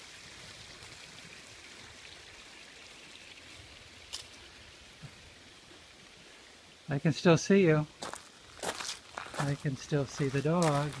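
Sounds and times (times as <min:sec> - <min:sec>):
faint outdoor background hiss: 0:00.0 - 0:11.0.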